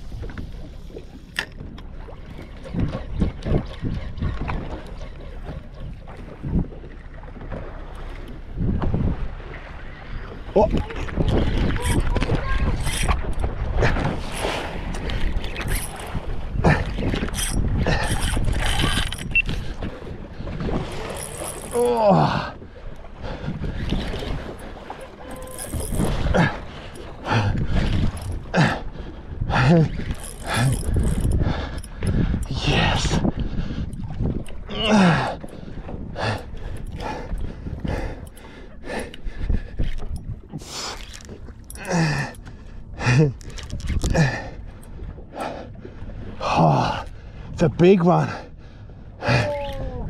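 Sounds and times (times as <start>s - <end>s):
wind and sea rumble: 0.0s - 50.0s
fishing reel being cranked: 11.6s - 13.2s, 15.4s - 16.2s, 17.2s - 19.6s, 25.2s - 26.1s, 30.0s - 31.9s.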